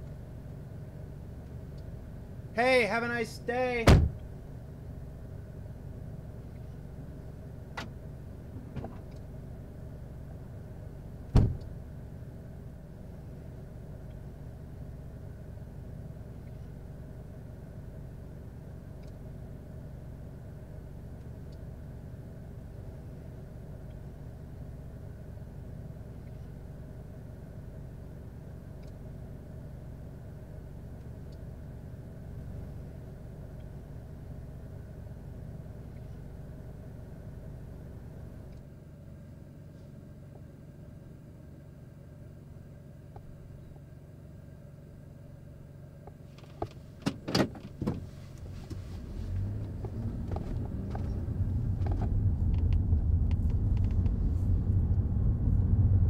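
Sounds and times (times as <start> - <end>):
steady low hum: 0.0 - 56.0
car trunk lid slamming: 3.8 - 4.2, 11.3 - 11.7.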